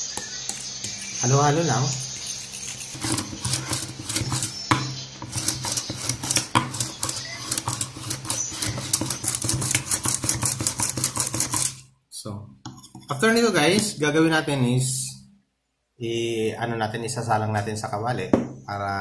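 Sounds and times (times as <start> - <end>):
utensil stirring wet mixture: 0.0 - 11.9, 12.6 - 13.9.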